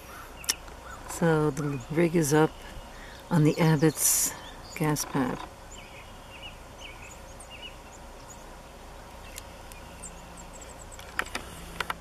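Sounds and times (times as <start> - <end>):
low steady hum: 0.0 - 12.0
small birds chirping: 0.0 - 12.0
sharp clicks: 10.9 - 12.0.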